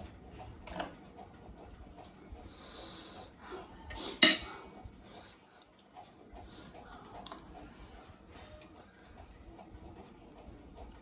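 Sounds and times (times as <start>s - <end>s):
chewing and utensil noises: 0.3s - 11.0s.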